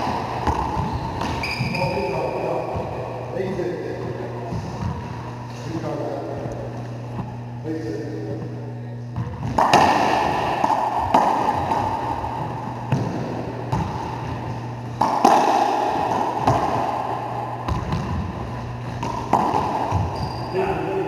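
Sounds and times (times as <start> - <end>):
ball cracking off racquets and walls: 0.0 - 1.9, 9.2 - 20.4
steady low hum: 0.0 - 21.0.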